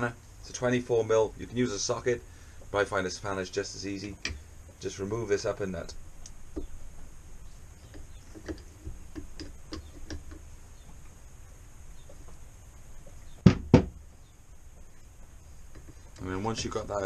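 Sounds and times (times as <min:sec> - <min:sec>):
sharp knocks: 0:13.4 - 0:14.2.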